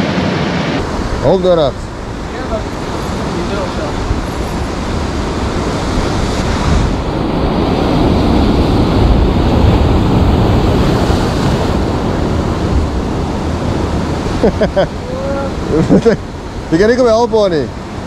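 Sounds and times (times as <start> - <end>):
waves breaking on rocks: 0.1 - 18.0.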